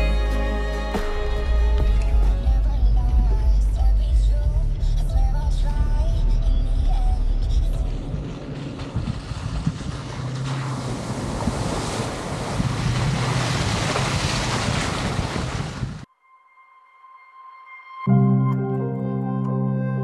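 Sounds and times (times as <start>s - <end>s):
wind noise on microphone: 1.6s - 16.1s
pickup truck approaching: 1.9s - 15.4s.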